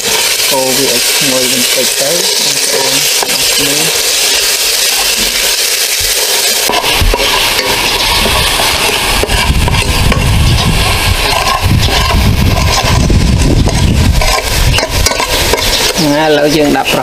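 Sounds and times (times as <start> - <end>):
ladle stirring in pot: 0.0 - 16.0
aromatics sizzling in oil: 0.0 - 17.0
low rumble: 8.0 - 15.9.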